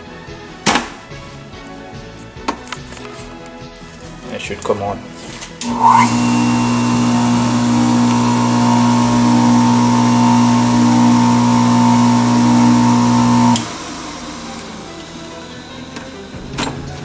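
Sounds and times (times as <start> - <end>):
juicer motor humming with whine: 5.6 - 16.6.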